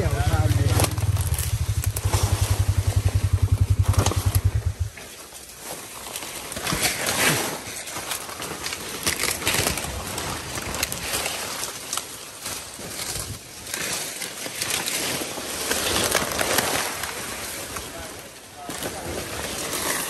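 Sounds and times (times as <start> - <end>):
vehicle engine idling: 0.0 - 5.0
crackles and rustles of brush: 0.0 - 20.0.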